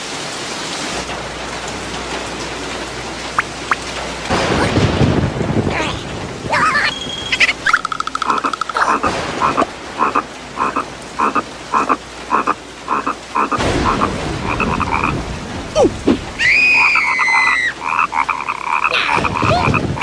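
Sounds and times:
cartoon frog croaking: 6.5s - 15.2s, 16.8s - 20.0s
cartoon character crying out: 15.8s - 18.0s.

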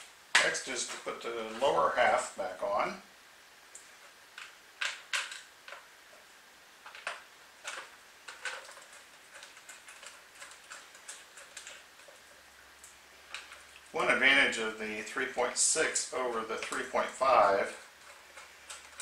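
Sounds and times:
metal parts clicking and tapping: 6.8s - 13.9s, 16.6s - 19.0s.

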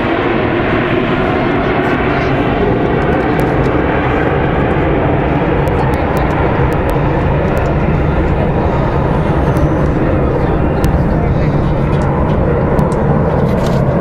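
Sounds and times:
jets flying overhead: 0.0s - 14.0s.

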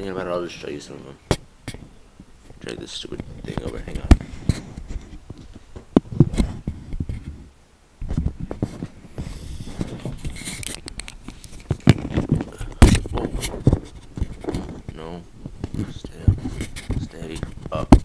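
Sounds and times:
camera handling noise: 9.7s - 15.0s.

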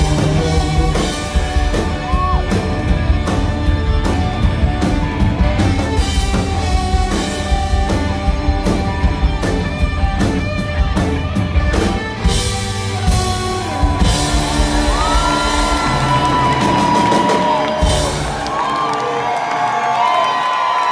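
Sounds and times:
rock band with saxophone: 0.0s - 20.9s
crowd whooping and whistling: 1.9s - 2.6s, 13.2s - 20.9s.

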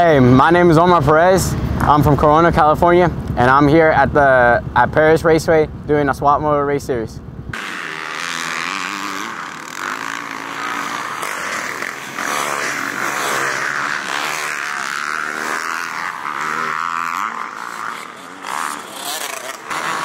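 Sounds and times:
dirt bike engines revving: 7.5s - 20.0s.

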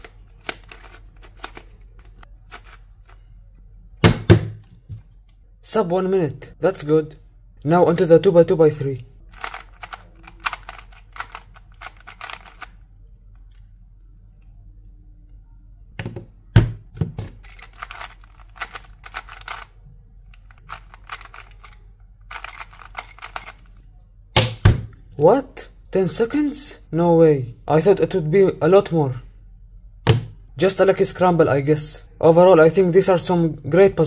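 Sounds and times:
twisty puzzle clicking: 9.4s - 12.8s, 17.4s - 19.7s, 20.4s - 23.8s.

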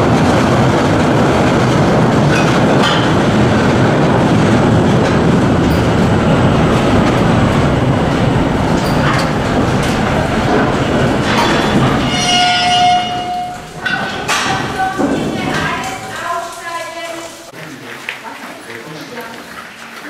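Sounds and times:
train wheels rolling on rails: 0.0s - 17.5s.

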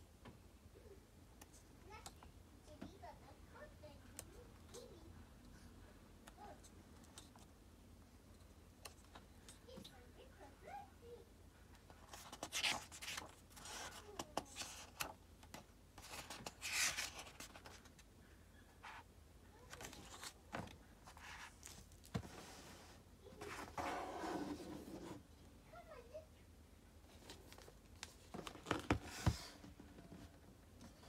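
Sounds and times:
book pages rustling: 11.9s - 18.1s, 18.8s - 25.2s, 27.1s - 30.3s
book cover sliding and rubbing: 16.0s - 17.7s, 21.1s - 25.2s.

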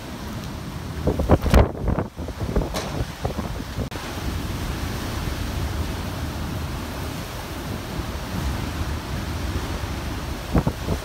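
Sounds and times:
heavy rain: 0.0s - 11.0s
wind buffeting microphone: 0.1s - 11.0s
wind rushing: 1.0s - 4.3s.

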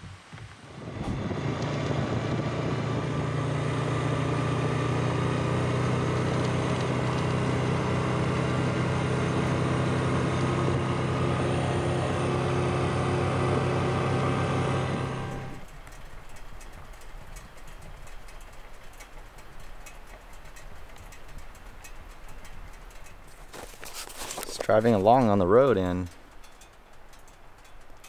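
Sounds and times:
atv engine running: 0.0s - 28.0s.

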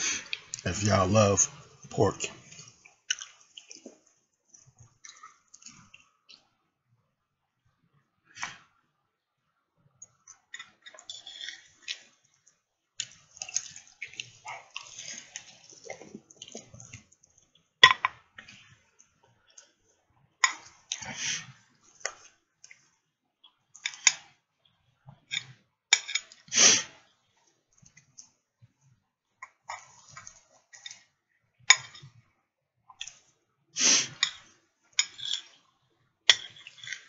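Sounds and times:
wet chewing and lip-smacking: 2.5s - 4.0s, 13.0s - 17.6s.

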